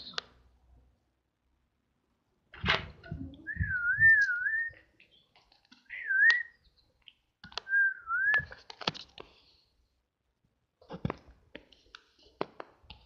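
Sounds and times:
person whistling: 3.5 - 4.8, 5.9 - 6.6, 7.7 - 8.5.

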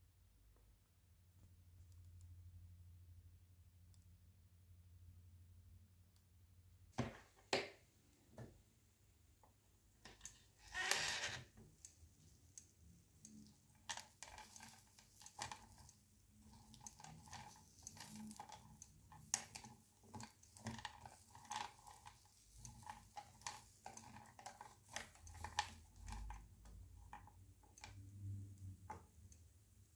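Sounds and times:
skewer scraping melted chocolate: 12.6 - 27.9.

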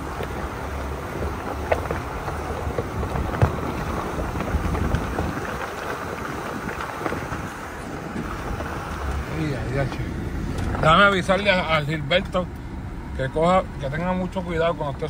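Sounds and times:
wind buffeting microphone: 0.0 - 11.0
engine rumble: 0.0 - 15.0
tyres crunching over gravel: 0.0 - 15.0.

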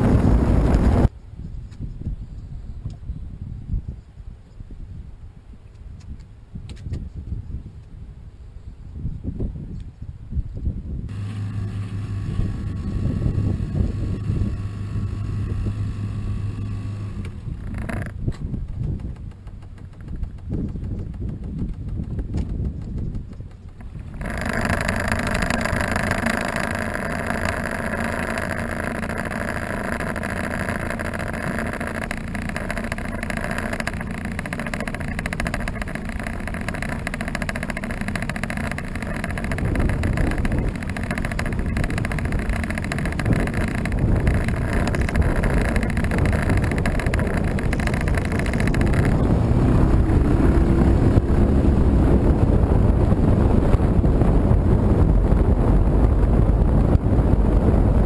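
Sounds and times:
outboard motor running: 0.0 - 1.1, 11.1 - 58.0
rushing water and air: 0.0 - 1.1, 11.1 - 20.4, 23.8 - 58.0.

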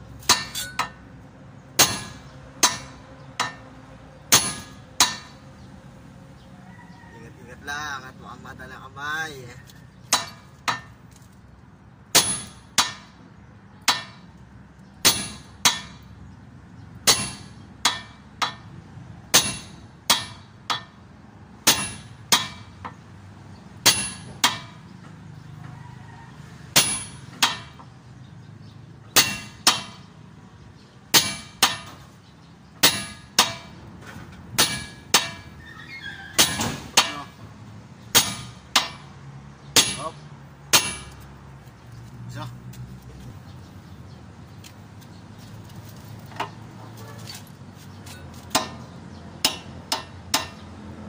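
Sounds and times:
sledgehammer striking steel: 0.2 - 1.0, 1.8 - 3.6, 4.3 - 5.4, 10.1 - 11.0, 12.1 - 13.2, 13.8 - 14.3, 15.0 - 16.1, 17.0 - 18.7, 19.3 - 21.0, 21.6 - 23.0, 23.8 - 24.8, 26.8 - 27.8, 29.2 - 30.1, 31.1 - 32.1, 32.8 - 33.8, 34.5 - 35.6, 36.3 - 37.4, 38.1 - 39.1, 39.8 - 41.3, 48.1 - 50.7.

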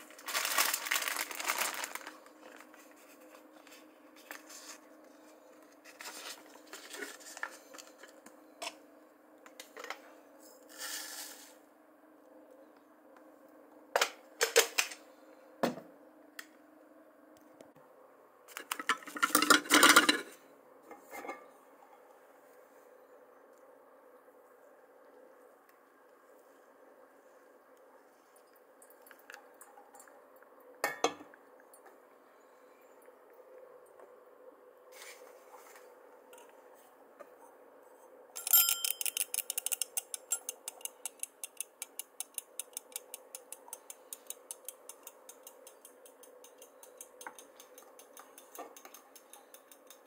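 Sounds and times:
paper filter rustling: 0.0 - 8.1
faint steady hum: 0.0 - 50.0
ground coffee being added: 10.7 - 11.6.

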